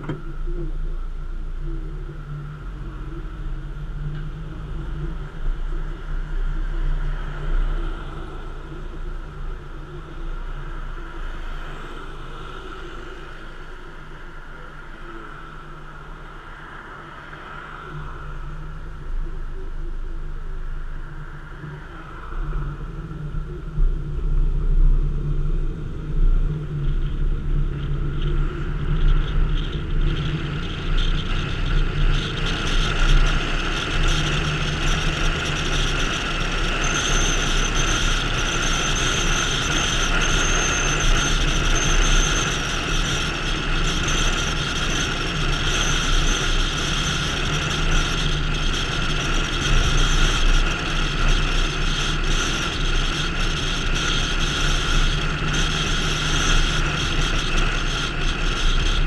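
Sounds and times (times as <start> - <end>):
car engine hum: 0.0 - 59.0
tyre and wind noise: 22.4 - 59.0.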